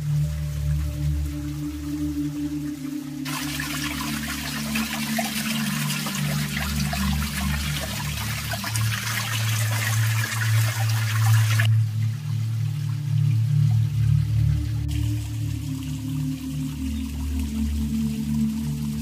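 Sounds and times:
low background music: 0.0 - 19.0
water splashing onto pebbles: 3.2 - 11.8.

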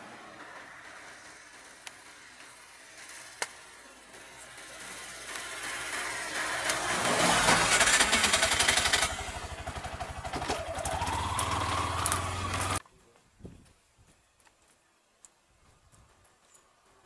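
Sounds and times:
motorcycle engine passing by: 0.0 - 12.8
engine note rising: 4.2 - 12.8.

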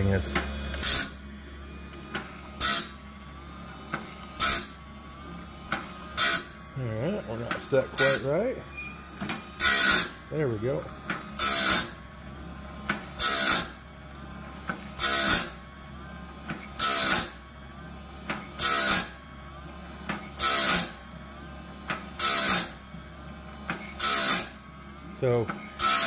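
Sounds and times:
harsh grinding rasp: 0.0 - 1.2, 2.2 - 3.0, 3.6 - 12.1, 12.9 - 13.8, 14.9 - 15.6, 16.6 - 17.4, 18.5 - 19.2, 20.2 - 21.0, 22.2 - 22.8, 23.8 - 26.0.

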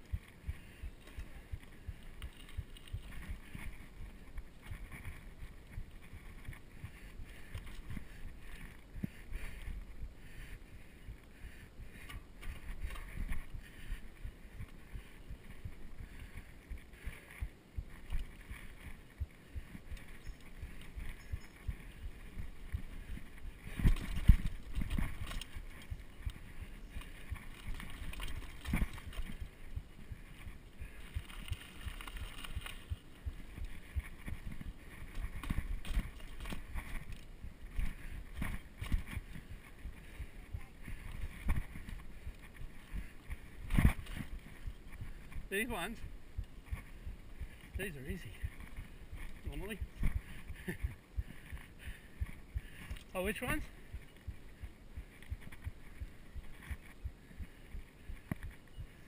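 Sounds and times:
mountain bike rattling: 12.0 - 45.8.

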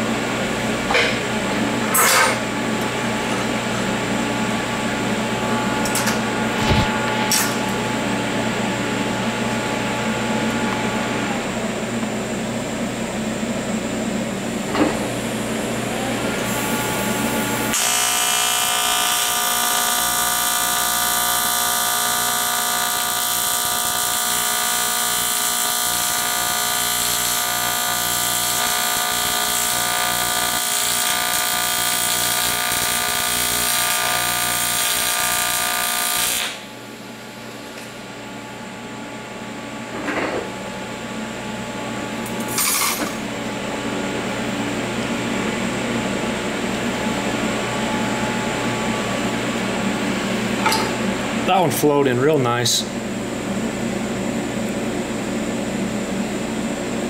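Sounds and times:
welder hum: 4.0 - 11.6, 14.8 - 38.0
welding arc buzzing: 5.2 - 8.2, 15.0 - 36.8.

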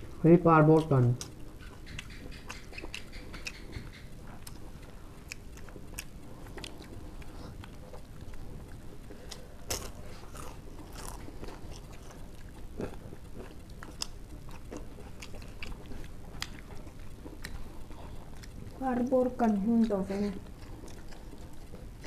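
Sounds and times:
people chewing and lip-smacking: 0.8 - 22.0
crunchy bites: 9.1 - 18.7.

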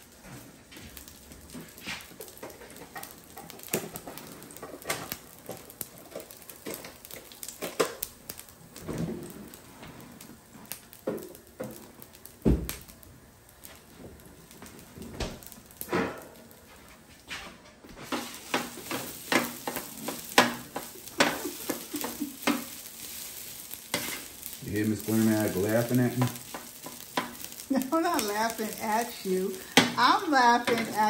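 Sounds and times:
spatula scraping on griddle: 1.4 - 7.2, 18.0 - 31.0.

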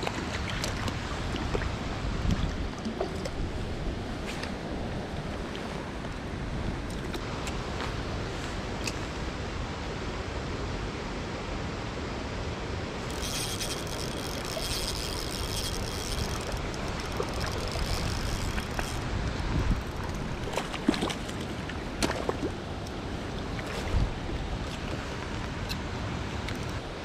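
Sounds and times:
running water rushing: 12.9 - 27.0.

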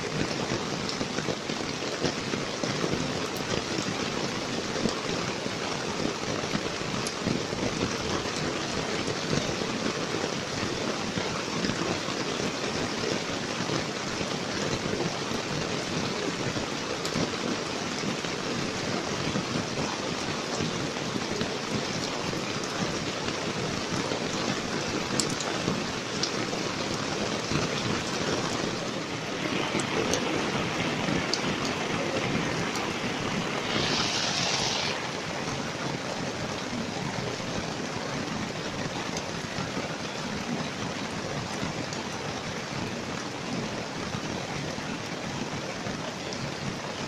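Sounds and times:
rain falling on wet ground: 0.0 - 47.0
raindrop ticks: 19.3 - 28.8, 29.5 - 30.6.

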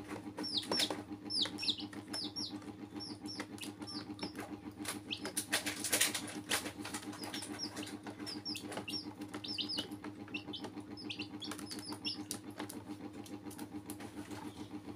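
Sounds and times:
beaks and feet scratching plastic: 0.0 - 14.9
chicks peeping: 0.0 - 14.9.

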